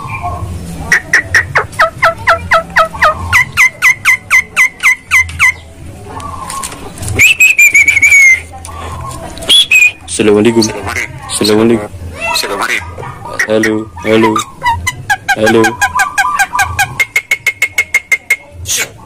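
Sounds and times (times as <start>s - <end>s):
bird whistled notes: 7.2s - 8.5s, 9.5s - 10.0s.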